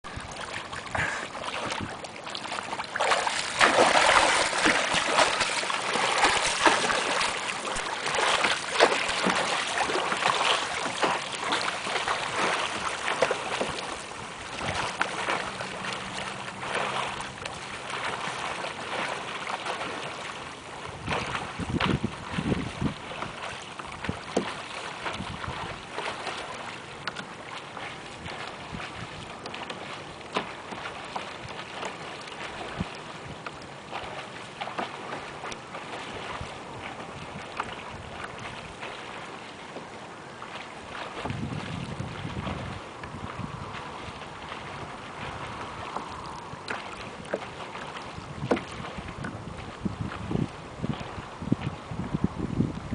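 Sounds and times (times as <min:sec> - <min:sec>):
wind on microphone: 0:00.0 - 0:02.1, 0:03.1 - 0:18.6, 0:19.4 - 0:26.3, 0:28.0 - 0:29.4, 0:32.4 - 0:34.1, 0:36.1 - 0:38.9, 0:40.9 - 0:52.9
water splashing around kayak: 0:00.0 - 0:52.9.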